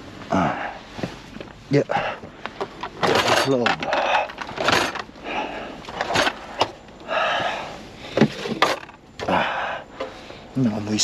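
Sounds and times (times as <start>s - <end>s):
rustling of belongings: 0.8s - 7.1s.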